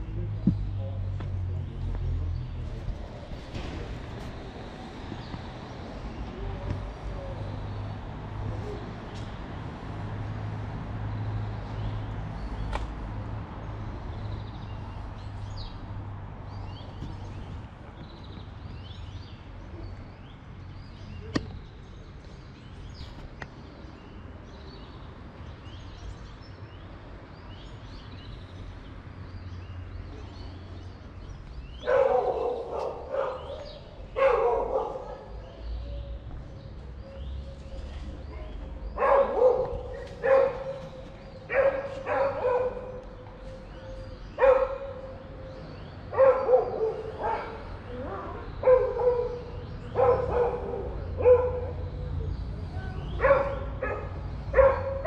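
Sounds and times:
dog barking: 0:31.8 - 0:35.4, 0:39.0 - 0:43.0, 0:44.4 - 0:45.1, 0:46.1 - 0:51.8, 0:53.1 - 0:55.0.

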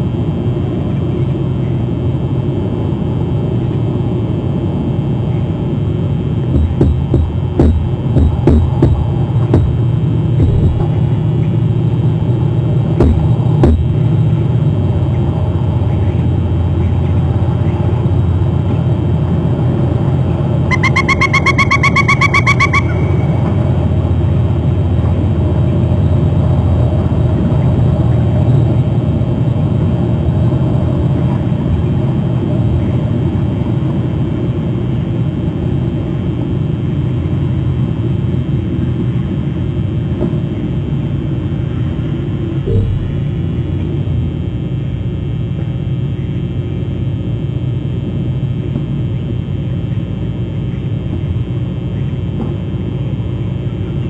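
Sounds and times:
low rumble: 0:06.5 - 0:15.7, 0:42.6 - 0:45.6
sharp knocks: 0:06.6 - 0:09.8, 0:10.4 - 0:11.0, 0:13.0 - 0:14.0, 0:42.7 - 0:43.6
rapid high-pitched pulses: 0:06.6 - 0:11.4, 0:13.0 - 0:14.1, 0:20.7 - 0:24.0, 0:42.7 - 0:44.6.

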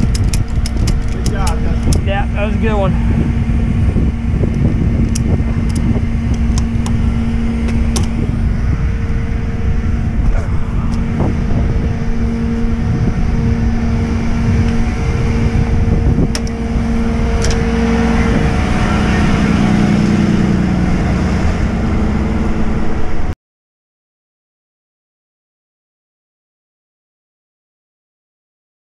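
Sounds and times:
sharp clicks: 0:00.0 - 0:02.0, 0:04.5 - 0:07.0, 0:17.4 - 0:17.6
truck engine humming: 0:00.0 - 0:23.4.

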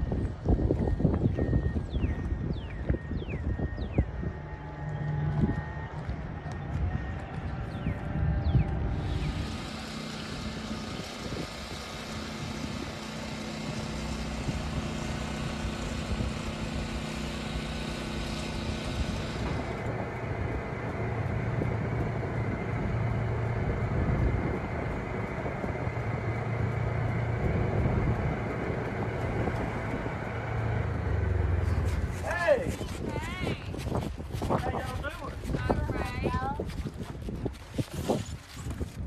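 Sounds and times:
vehicle driving rumble: 0:00.0 - 0:39.0.

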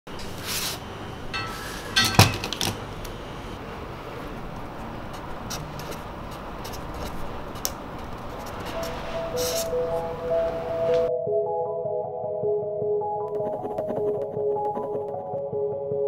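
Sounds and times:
paper pad rustling: 0:04.5 - 0:10.2
pencil tapping: 0:04.6 - 0:11.1, 0:13.3 - 0:15.4
pad knocking on desk: 0:13.3 - 0:15.3.

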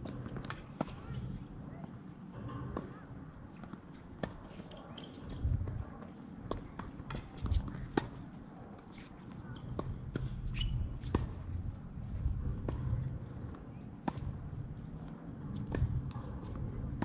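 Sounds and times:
tennis balls struck and bouncing: 0:12.4 - 0:17.0.

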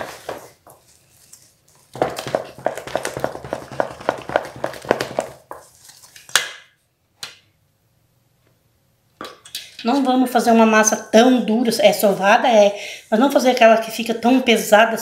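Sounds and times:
wooden spoon stirring dough: 0:00.0 - 0:05.9.

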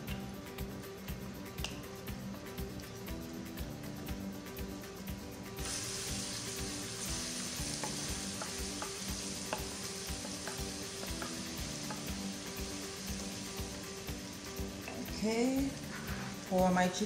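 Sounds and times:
garlic sizzling in oil: 0:05.5 - 0:17.0.

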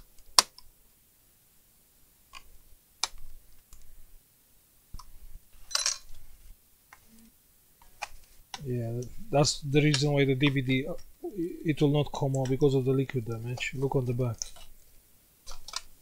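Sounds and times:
crackling plastic snap: 0:00.0 - 0:00.7, 0:15.4 - 0:16.0
plastic clips clicking: 0:15.4 - 0:16.0.

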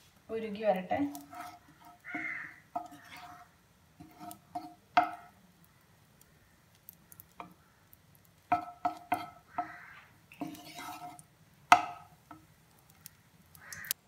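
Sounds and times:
spatula knocking and scraping pan: 0:01.0 - 0:05.4, 0:08.5 - 0:12.5.

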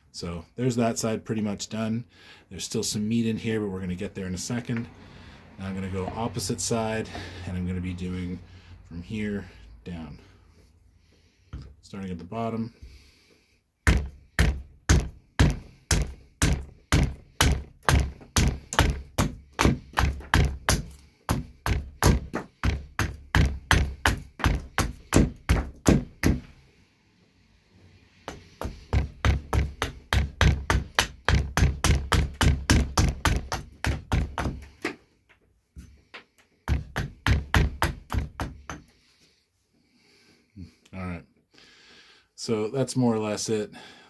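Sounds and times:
axe chopping wood: 0:13.9 - 0:26.5, 0:28.3 - 0:35.0, 0:36.7 - 0:38.9.

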